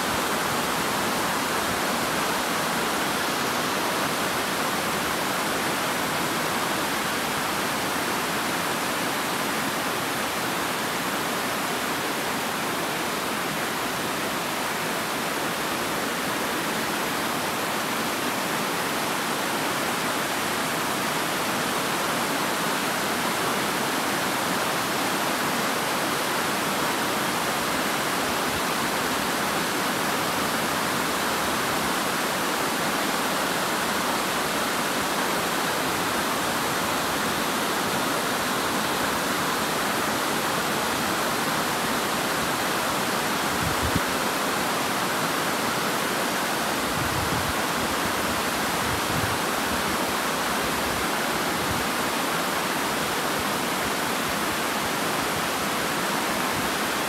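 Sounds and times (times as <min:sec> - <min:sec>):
water cascading over rocks: 0:00.0 - 0:57.0.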